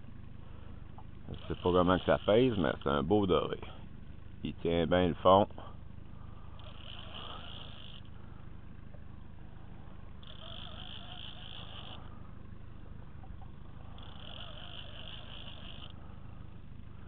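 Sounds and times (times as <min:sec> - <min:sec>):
fishing reel whirring: 0:01.3 - 0:03.0, 0:06.5 - 0:08.2, 0:10.2 - 0:12.2, 0:13.3 - 0:16.0.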